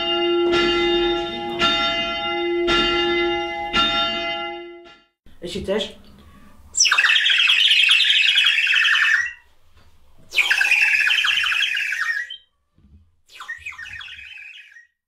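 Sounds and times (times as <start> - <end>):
shrill squawky mouth instrument: 6.7 - 9.4, 10.3 - 12.4, 13.3 - 15.0.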